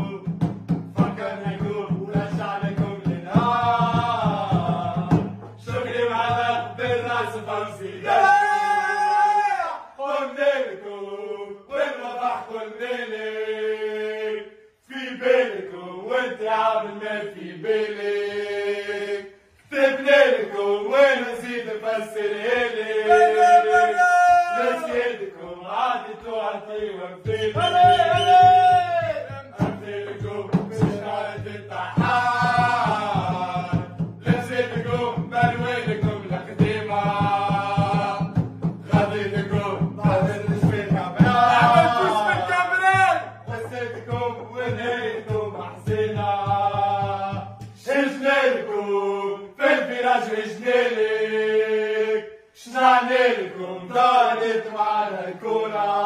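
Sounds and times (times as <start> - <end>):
steady drum beat: 0.0 - 8.3, 27.2 - 48.0
crowd chanting: 1.0 - 56.0.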